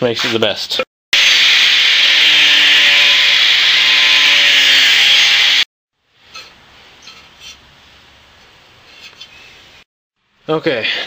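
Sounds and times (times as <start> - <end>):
angle grinder grinding metal: 1.2 - 5.7.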